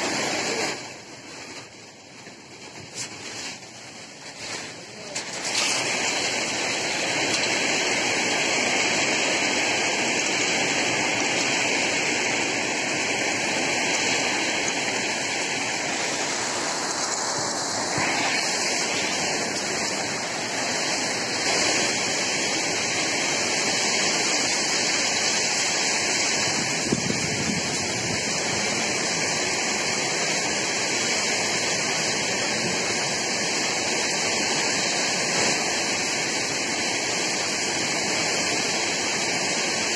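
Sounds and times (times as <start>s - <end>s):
heavy rain: 0.0s - 39.9s
strong wind: 5.8s - 35.3s.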